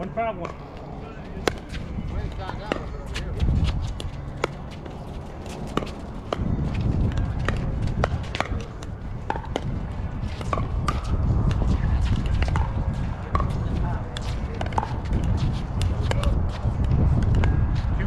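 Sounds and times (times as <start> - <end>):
steady low rumble: 0.0 - 18.0
paddles hitting plastic ball: 5.5 - 17.6.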